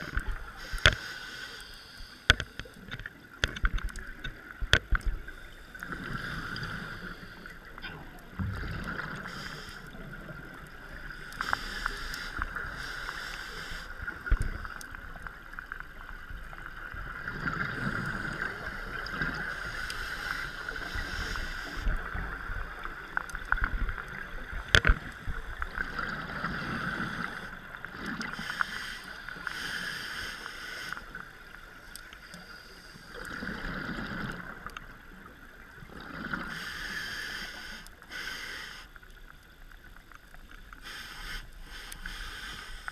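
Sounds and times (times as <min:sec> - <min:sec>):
exhaled bubbles rumbling underwater: 0:02.5 - 0:29.5, 0:33.0 - 0:36.8.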